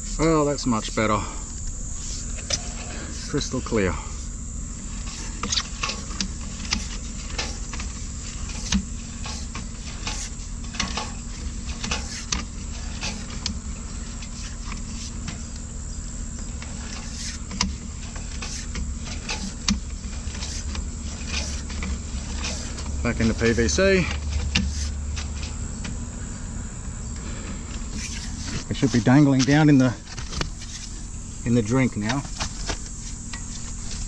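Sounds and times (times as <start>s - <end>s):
engine humming: 0.0s - 34.0s.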